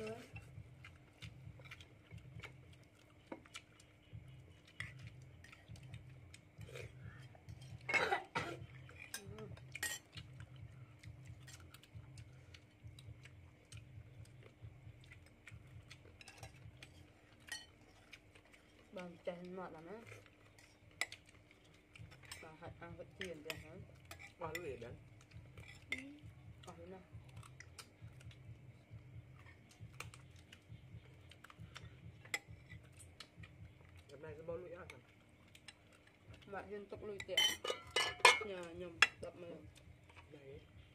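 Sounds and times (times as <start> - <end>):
low steady hum: 0.0 - 40.9
spoons clinking on plates: 8.9 - 10.2, 17.4 - 18.0, 37.2 - 39.2
cutlery tapping on plates: 37.4 - 39.2.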